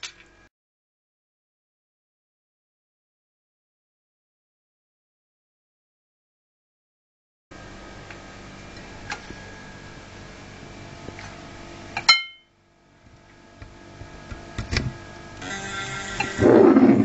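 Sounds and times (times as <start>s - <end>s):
loud ringing ping: 12.1s - 12.5s
hard drive humming: 12.7s - 17.0s
rising drive noise: 13.0s - 17.0s.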